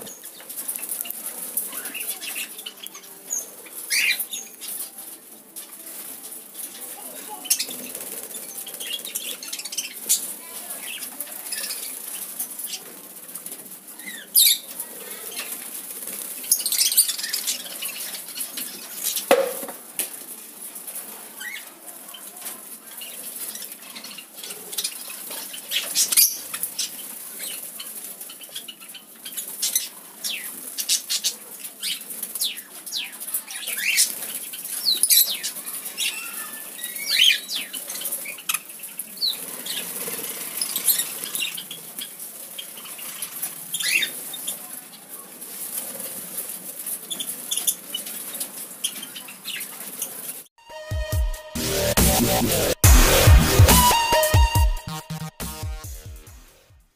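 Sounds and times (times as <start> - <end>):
bird chirps: 1.7 - 5.0
birds flapping wings: 3.7 - 50.4.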